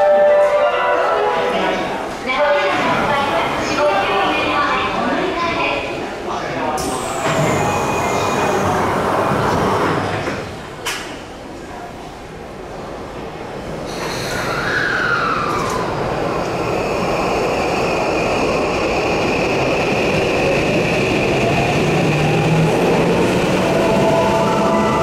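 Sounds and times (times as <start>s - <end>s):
train running noise: 0.0s - 25.0s
train inverter and motor whine: 6.8s - 10.5s.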